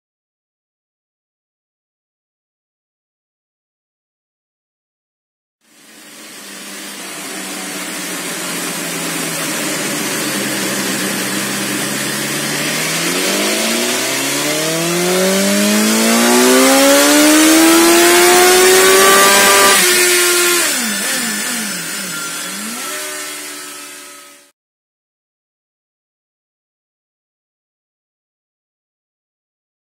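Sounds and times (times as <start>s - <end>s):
motorcycle engine revving: 5.8s - 24.5s.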